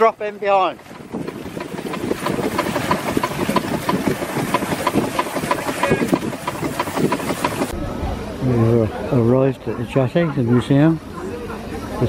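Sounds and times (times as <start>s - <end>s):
steam engine running: 0.9s - 7.8s.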